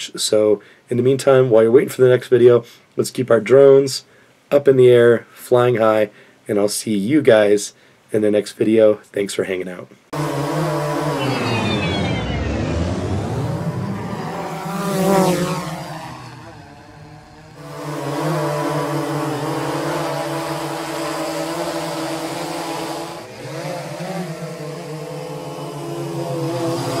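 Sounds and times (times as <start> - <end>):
drone propellers buzzing: 10.2 - 27.0.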